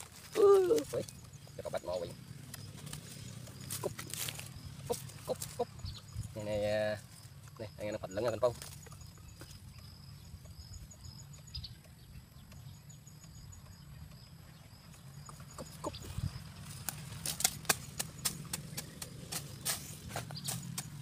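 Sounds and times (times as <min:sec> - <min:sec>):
machete striking dry ground: 0:16.7 - 0:21.0.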